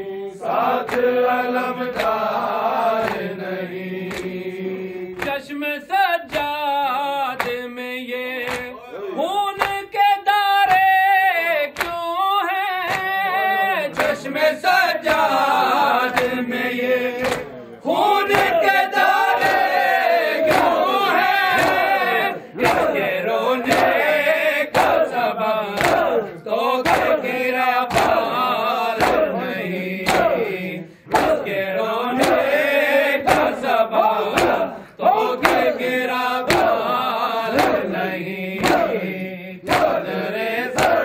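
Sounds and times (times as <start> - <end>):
men chanting together: 0.0 - 41.0
hands striking chest: 35.4 - 35.7, 36.5 - 36.8, 38.6 - 39.0, 39.7 - 40.0.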